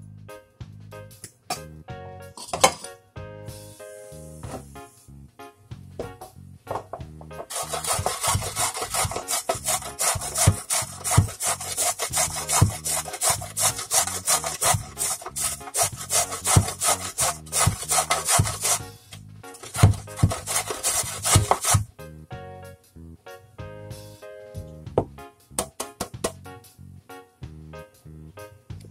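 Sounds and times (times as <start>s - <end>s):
soft background music: 0.0s - 28.9s
carrot grating on metal grater: 7.4s - 18.9s, 19.5s - 21.9s.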